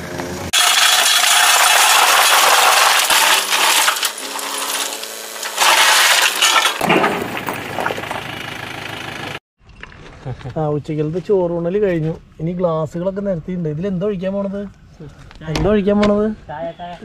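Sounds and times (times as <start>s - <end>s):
diesel engine running: 0.0s - 0.5s, 6.9s - 9.4s.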